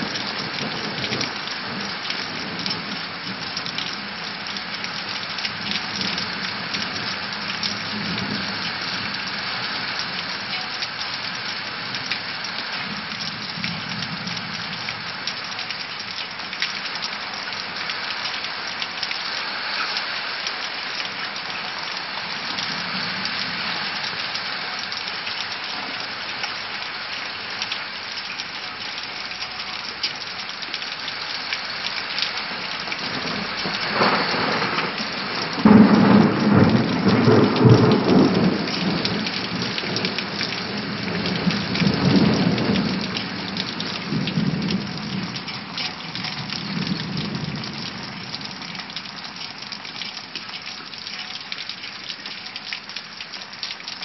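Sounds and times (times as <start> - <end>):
rain falling: 0.0 - 54.0
thunder rumbling: 33.0 - 45.8.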